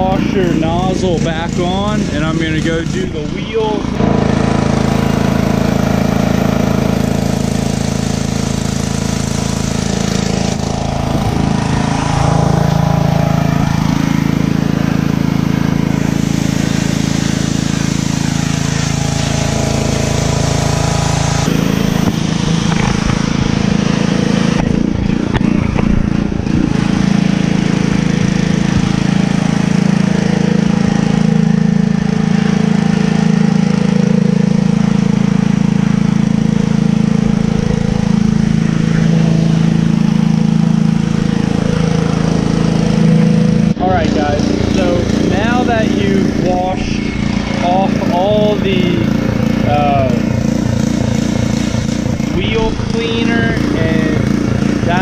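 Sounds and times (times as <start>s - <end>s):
high-pressure water jet hissing: 0.0s - 55.0s
pressure washer engine humming: 0.0s - 55.0s.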